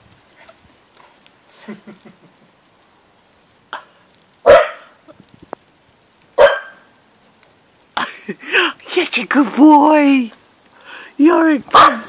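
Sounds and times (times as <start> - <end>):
dog barking: 4.4 - 5.0, 6.4 - 6.9
dog yapping: 4.5 - 4.9, 6.4 - 6.9.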